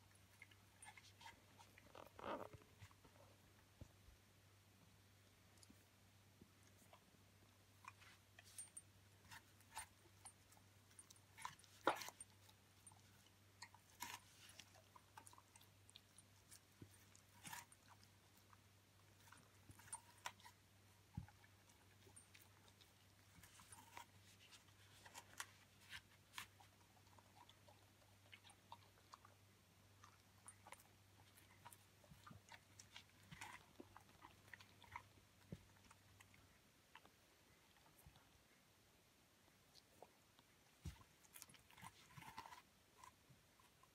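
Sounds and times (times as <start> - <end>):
dog crunching an apple: 7.8 - 29.4, 30.0 - 37.1, 40.8 - 43.9.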